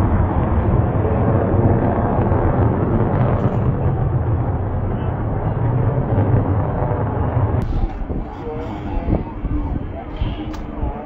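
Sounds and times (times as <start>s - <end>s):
distant jet engine rumble: 0.0s - 11.0s.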